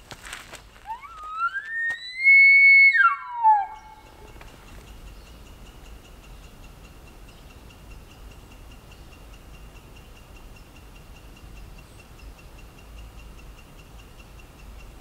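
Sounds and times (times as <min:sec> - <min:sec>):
faint high-pitched ticks: 0:03.0 - 0:15.0.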